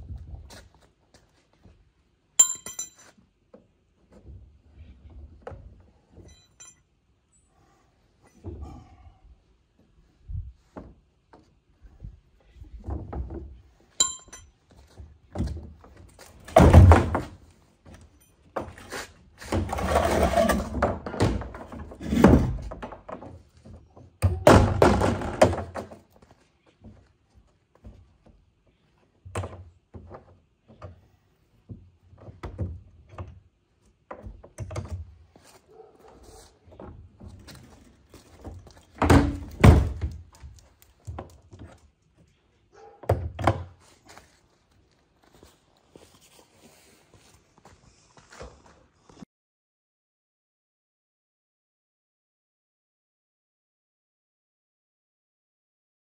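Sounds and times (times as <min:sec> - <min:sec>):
plastic cart thunks: 0:16.5 - 0:17.4, 0:24.2 - 0:26.0, 0:39.0 - 0:40.2
cart rattling and scraping: 0:18.6 - 0:22.8.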